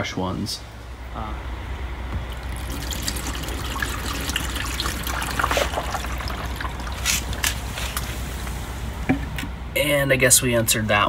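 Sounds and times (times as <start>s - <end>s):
water pouring into plastic hull: 2.3s - 8.1s.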